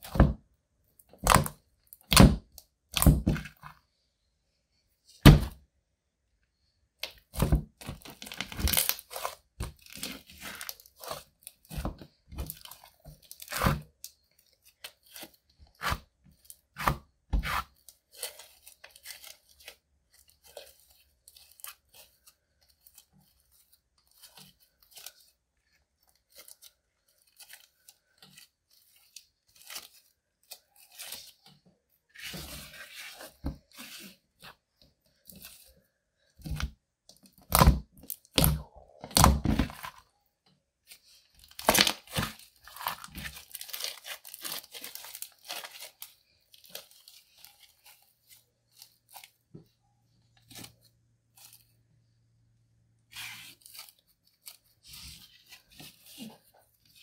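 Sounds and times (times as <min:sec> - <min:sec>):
slime popping and crackling: 0:07.9 - 0:11.1, 0:41.5 - 0:46.0.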